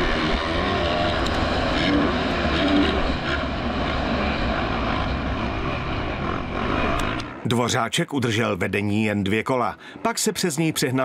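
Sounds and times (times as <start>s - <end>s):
motorcycle engines revving: 0.0s - 7.4s.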